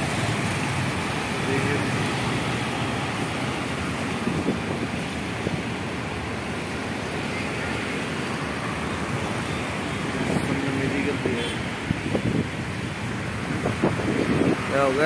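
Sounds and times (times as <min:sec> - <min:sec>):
vehicles passing on wet road: 0:00.0 - 0:15.0
wind on microphone: 0:03.1 - 0:06.2, 0:11.7 - 0:14.9.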